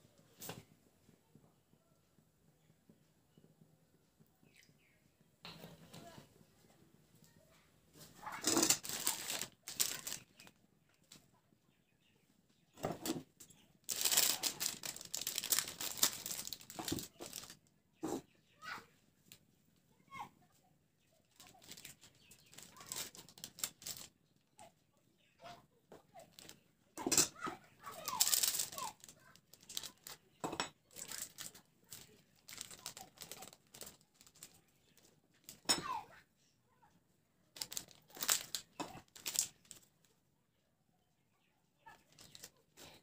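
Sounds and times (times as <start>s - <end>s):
foil sachet crinkling and tearing: 8.2s - 10.5s, 13.8s - 17.6s, 21.4s - 24.1s, 27.8s - 30.2s, 31.0s - 35.6s, 37.6s - 39.9s, 42.0s - 43.0s.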